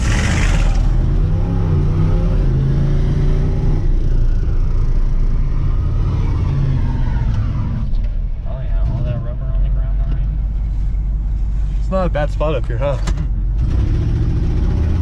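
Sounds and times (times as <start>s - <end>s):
engine revving under load: 0.0s - 4.1s, 13.6s - 15.0s.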